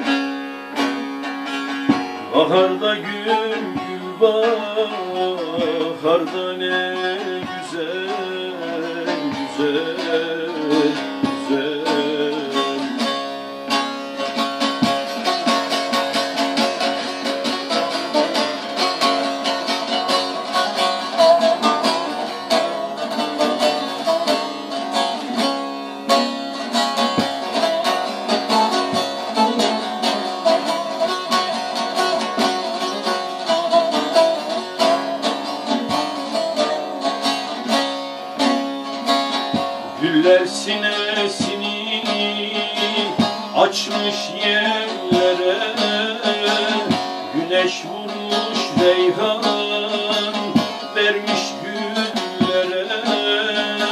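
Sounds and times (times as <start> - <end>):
long-necked lute strumming: 0.0 - 53.9.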